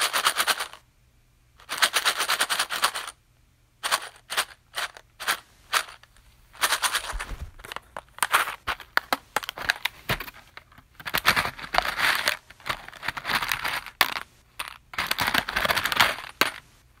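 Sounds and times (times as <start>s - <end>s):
plastic push pins rattling: 3.9s - 16.6s.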